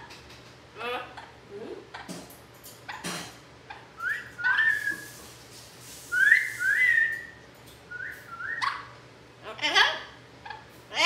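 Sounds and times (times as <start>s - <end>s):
parrot whistling: 4.0s - 5.1s, 6.1s - 8.9s.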